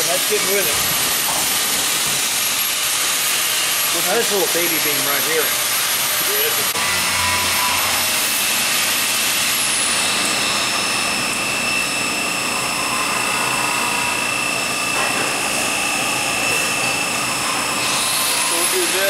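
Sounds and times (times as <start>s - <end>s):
high steady machine whine: 0.0s - 19.0s.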